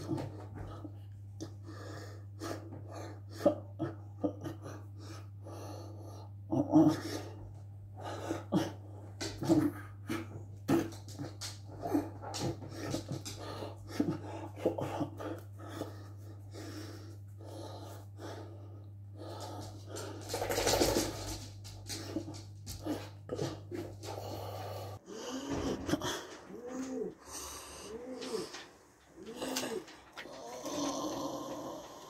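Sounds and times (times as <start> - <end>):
steady low hum: 0.0 - 32.0
man breathing: 24.0 - 32.0
pigeons cooing: 25.5 - 32.0.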